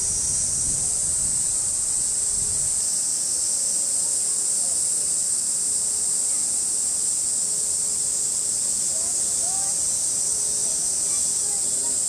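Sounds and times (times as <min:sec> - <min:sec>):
wind rumble on microphone: 0:00.0 - 0:02.8
cicadas chorus: 0:00.0 - 0:12.0.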